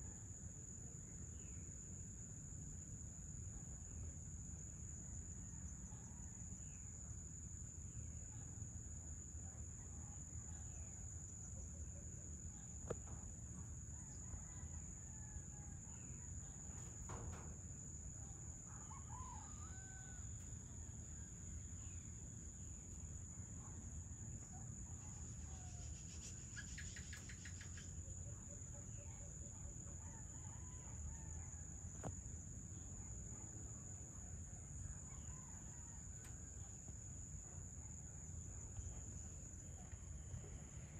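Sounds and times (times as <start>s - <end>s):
rooster crowing: 18.8s - 20.4s.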